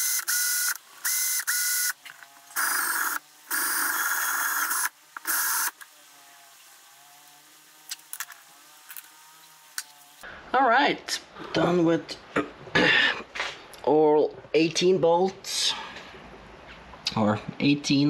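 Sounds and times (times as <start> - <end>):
electric power tool motor whine: 0.0 - 10.2.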